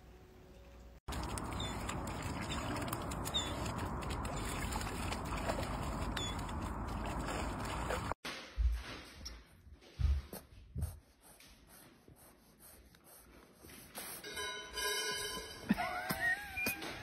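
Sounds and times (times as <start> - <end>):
water sloshing and splashing: 1.1 - 8.2.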